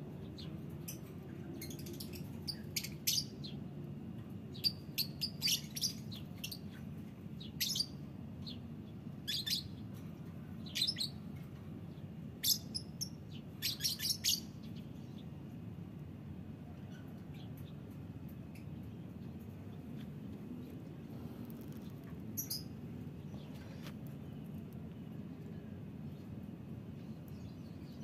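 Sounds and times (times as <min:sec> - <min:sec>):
low background rumble: 0:14.4 - 0:28.0.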